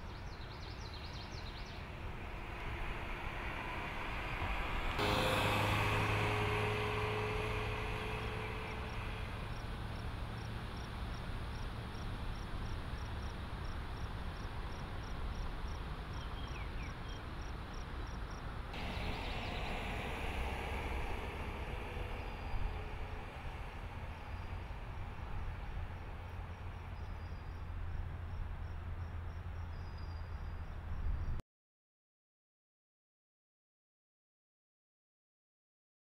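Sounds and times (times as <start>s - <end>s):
van driving past: 0.8s - 30.9s
insect chirps: 8.1s - 30.8s.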